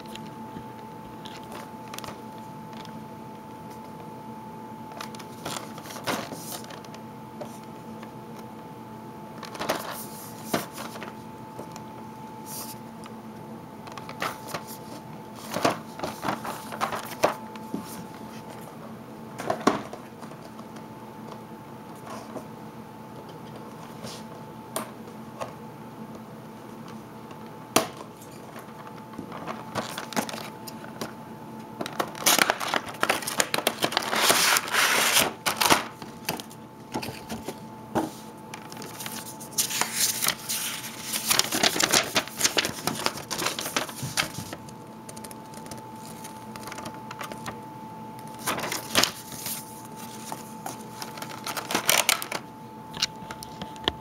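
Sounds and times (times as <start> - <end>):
plastic packaging crackling: 0.0 - 3.0, 13.9 - 17.4, 28.3 - 31.2, 31.8 - 37.5, 38.6 - 47.6, 48.2 - 53.6.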